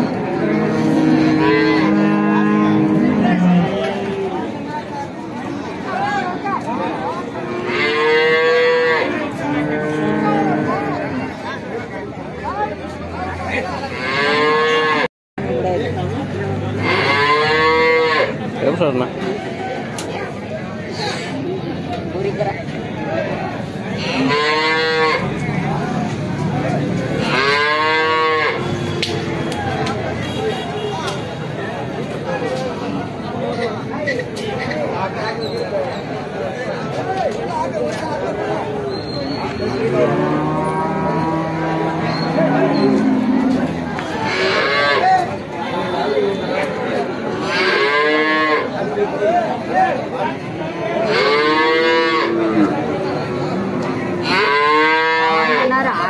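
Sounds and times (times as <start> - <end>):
cattle mooing: 0.4 - 4.2, 7.6 - 11.1, 14.0 - 15.1, 16.8 - 18.3, 24.0 - 25.2, 27.2 - 28.6, 39.8 - 45.1, 47.4 - 48.8, 51.0 - 52.9, 53.8 - 55.9.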